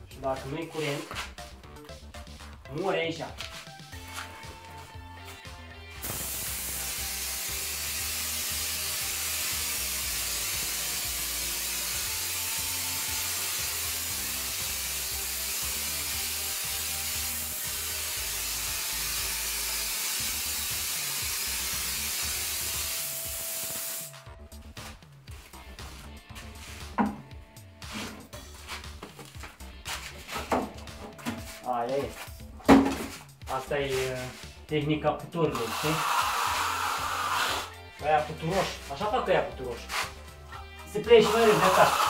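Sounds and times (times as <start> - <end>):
background music: 0.0 - 42.0
spray gun air hissing: 6.0 - 24.2, 35.5 - 37.7, 41.2 - 42.0.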